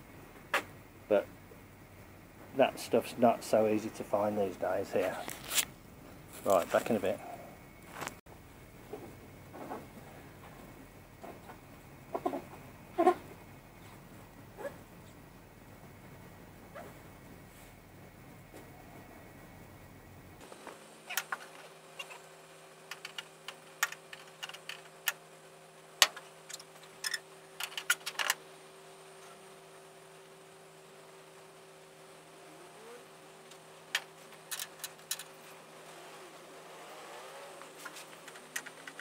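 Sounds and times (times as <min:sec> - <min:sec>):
faint steady hum: 0:00.0 - 0:39.0
metallic clicks of nuts and bolts: 0:22.9 - 0:25.2, 0:33.9 - 0:35.3.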